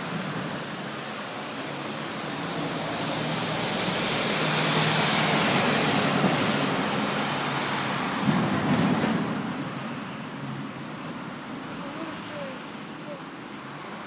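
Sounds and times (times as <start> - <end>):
vehicle passing: 1.7 - 9.4.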